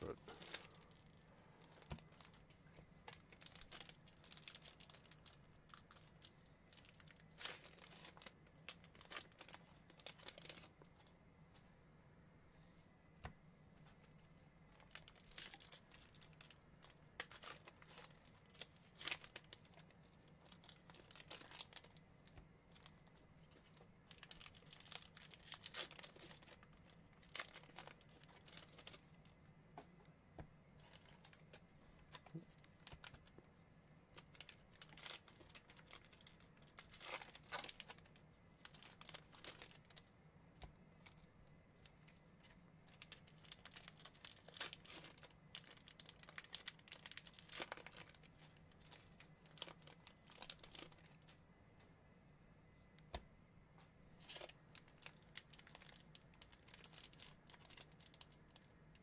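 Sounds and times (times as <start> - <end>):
foil wrappers tearing and crinkling: 3.1 - 10.7, 14.8 - 22.9, 24.1 - 29.4, 34.2 - 40.1, 42.9 - 51.4, 54.2 - 58.7.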